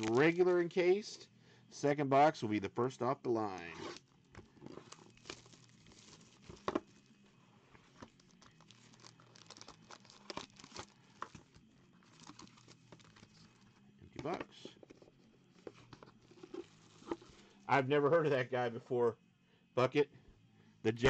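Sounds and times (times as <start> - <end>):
foil wrapping crinkling and tearing: 4.7 - 7.0, 8.1 - 13.5.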